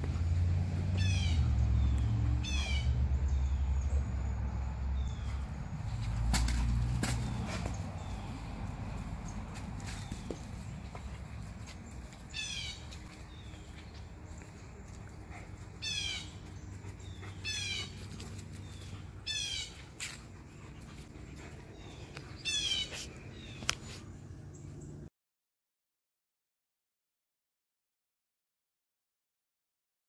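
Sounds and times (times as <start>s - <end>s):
bird calling: 12.3s - 13.6s, 15.8s - 19.9s, 21.8s - 23.8s.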